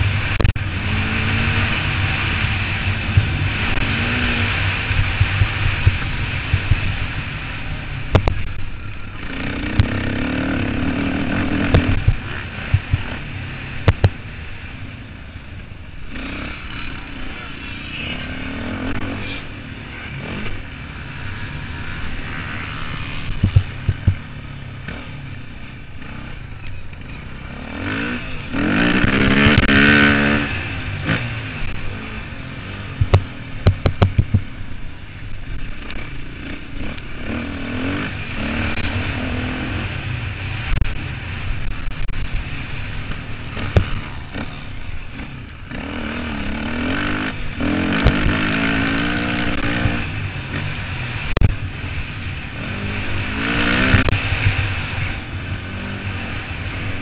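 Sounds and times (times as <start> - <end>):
motorcycle engines revving: 0.0 - 57.0.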